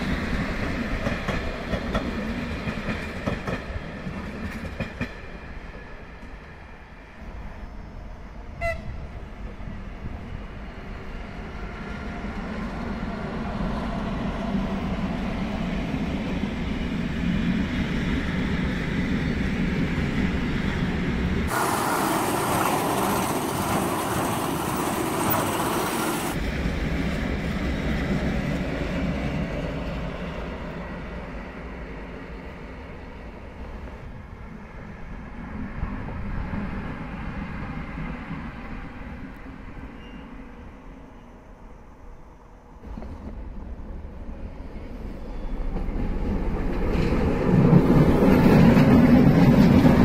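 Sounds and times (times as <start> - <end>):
freight train rumble: 0.0 - 50.0
train horn toot: 8.6 - 9.1
loud hiss: 21.5 - 26.4.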